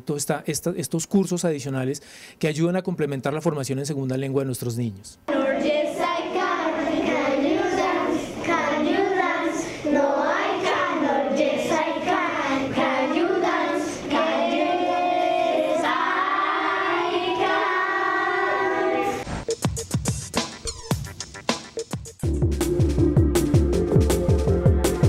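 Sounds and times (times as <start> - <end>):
children singing: 5.3 - 19.2.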